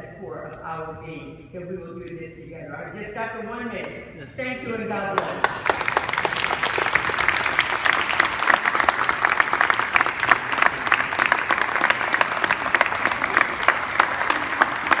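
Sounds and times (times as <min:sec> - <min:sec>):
audience applauding: 0:05.2 - 0:15.0.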